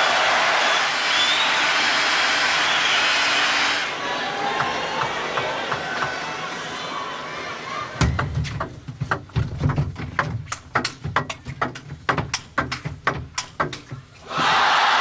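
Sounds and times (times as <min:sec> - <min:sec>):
crowd hum: 0:03.8 - 0:08.0
dull thumps: 0:08.0 - 0:14.2.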